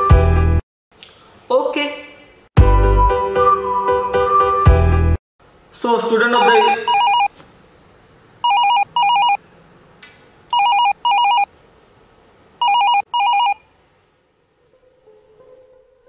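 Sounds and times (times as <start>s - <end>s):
mobile phone ringing: 6.4s - 7.3s, 8.4s - 9.4s, 10.5s - 11.5s, 12.6s - 13.6s.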